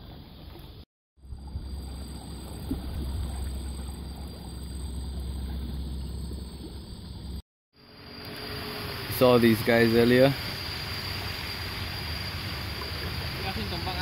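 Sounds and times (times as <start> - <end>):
low rumble and water wash: 0.0 - 14.0.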